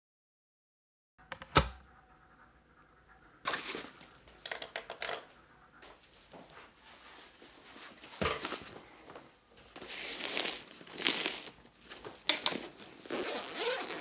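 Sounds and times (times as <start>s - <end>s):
footsteps: 5.3s - 10.0s
clothing rustle: 6.0s - 14.0s.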